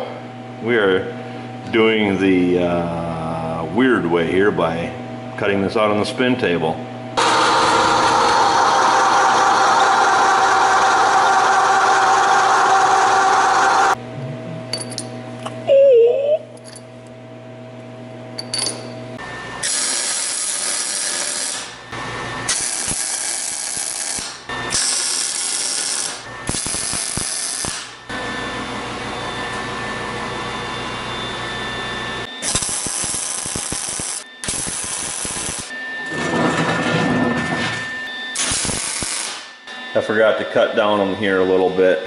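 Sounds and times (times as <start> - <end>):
arc welding crackling: 19.6 - 21.8, 22.5 - 28.0, 32.4 - 35.7, 38.4 - 39.5.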